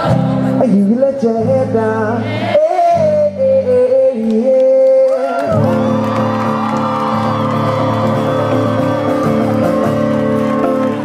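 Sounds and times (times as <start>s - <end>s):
audience singing along: 0.0s - 0.8s
person singing: 0.0s - 7.9s
acoustic guitar: 0.0s - 11.0s.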